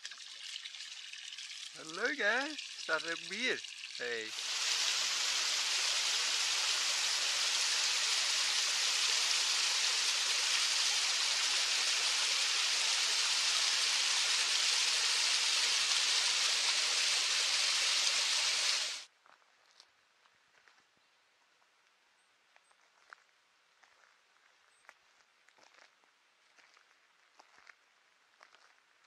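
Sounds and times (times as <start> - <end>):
stream rushing over rocks: 4.0 - 19.0.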